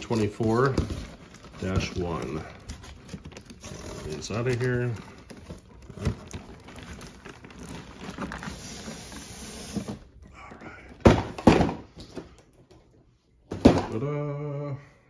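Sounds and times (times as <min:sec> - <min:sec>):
cardboard boxes rustling: 0:00.0 - 0:12.8
box thunks: 0:10.9 - 0:12.3, 0:13.5 - 0:14.1.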